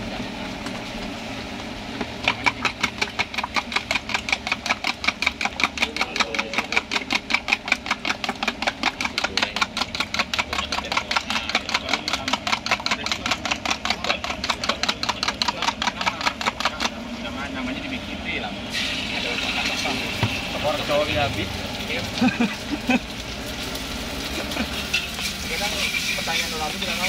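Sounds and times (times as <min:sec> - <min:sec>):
eggs beaten in plastic jug: 0:02.0 - 0:17.2.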